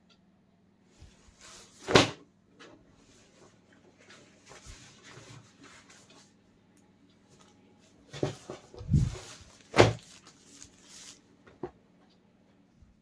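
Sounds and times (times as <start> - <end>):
fabric rustling: 7.4 - 11.3.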